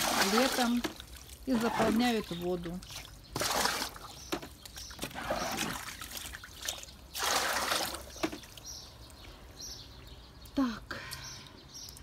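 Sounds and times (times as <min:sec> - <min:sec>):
plastic buckets knocking: 0:00.0 - 0:01.0, 0:03.4 - 0:05.7, 0:07.9 - 0:08.5
water poured into bucket: 0:00.0 - 0:02.1, 0:02.9 - 0:04.1, 0:05.0 - 0:08.5.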